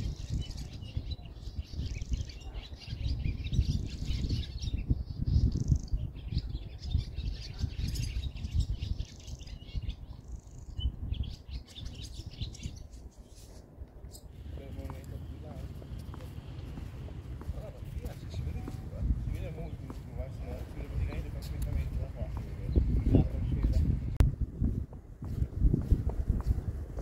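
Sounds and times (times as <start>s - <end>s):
small birds chirping: 0.0s - 27.0s
low uneven rumble: 13.7s - 27.0s.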